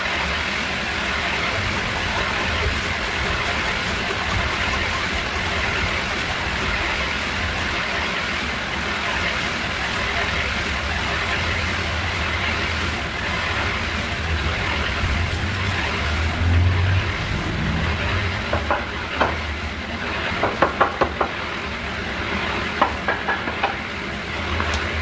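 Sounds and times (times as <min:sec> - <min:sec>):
steady low rumble: 0:00.0 - 0:20.2
hand tool knocking on wooden frame: 0:18.5 - 0:19.4, 0:20.4 - 0:21.4, 0:22.8 - 0:23.8.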